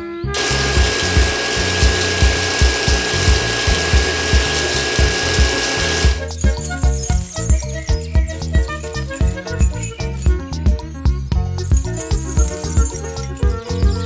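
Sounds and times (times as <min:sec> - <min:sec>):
toy water pump motors whining: 0:00.4 - 0:10.2
music with jingling: 0:00.4 - 0:14.0
music with low beat: 0:00.4 - 0:14.0.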